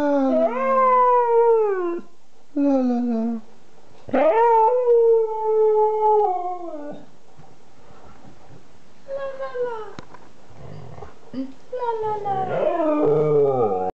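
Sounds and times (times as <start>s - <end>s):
dog howling: 0.0s - 2.1s, 4.1s - 7.1s, 12.0s - 13.9s.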